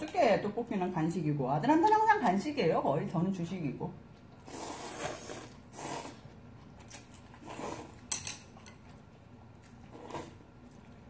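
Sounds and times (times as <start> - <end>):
noodles slurped: 4.4 - 8.1, 9.7 - 10.8.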